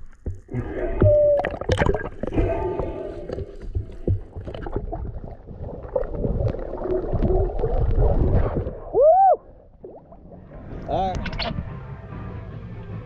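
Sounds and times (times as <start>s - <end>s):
underwater clicks and knocks: 0.0s - 8.0s
muffled underwater rumble: 0.0s - 12.2s.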